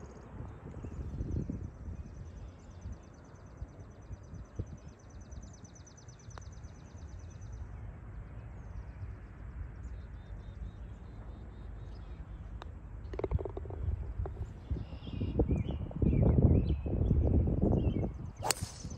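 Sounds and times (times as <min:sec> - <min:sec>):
low outdoor rumble: 0:10.9 - 0:15.8.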